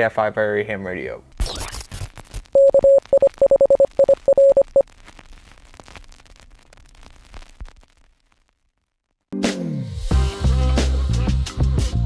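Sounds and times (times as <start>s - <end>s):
faint radio static crackle: 1.2s - 9.3s
morse code beeps: 2.6s - 4.8s.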